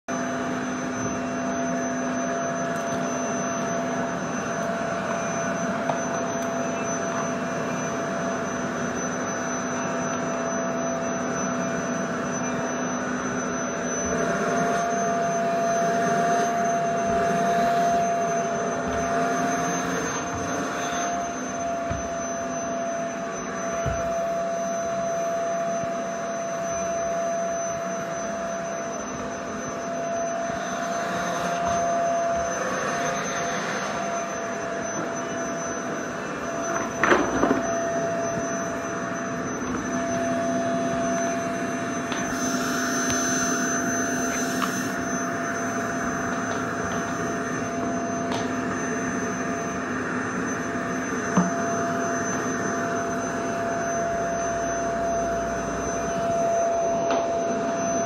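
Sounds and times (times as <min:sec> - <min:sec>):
vacuum cleaner running: 0:00.1 - 0:58.0.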